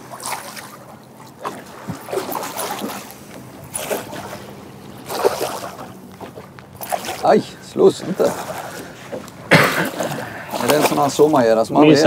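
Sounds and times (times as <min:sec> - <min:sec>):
fish thrashing and splashing: 0:00.0 - 0:11.5.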